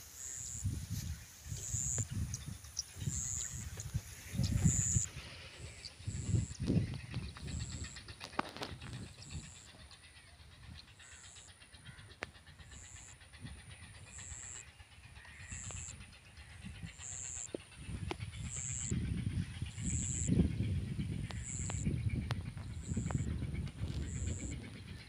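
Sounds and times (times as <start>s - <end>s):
wind gusting on microphone: 0.5s - 9.9s, 15.4s - 25.0s.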